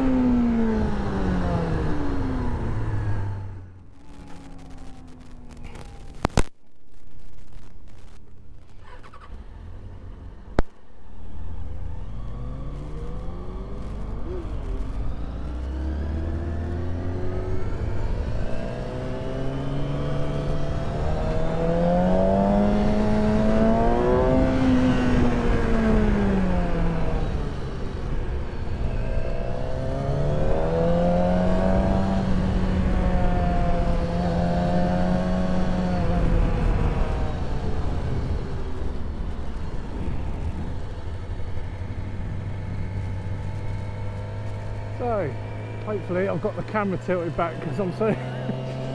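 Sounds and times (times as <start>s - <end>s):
motorcycle engine revving: 0.0s - 6.5s, 7.9s - 48.9s.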